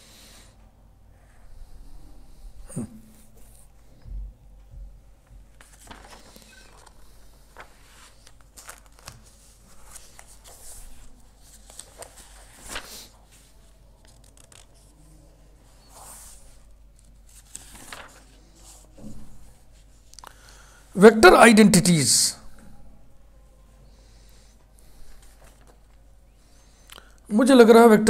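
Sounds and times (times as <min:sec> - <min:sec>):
paper rustling and crinkling: 0:05.5 - 0:15.0, 0:15.9 - 0:19.9, 0:25.1 - 0:26.0
low steady hum: 0:16.4 - 0:20.8.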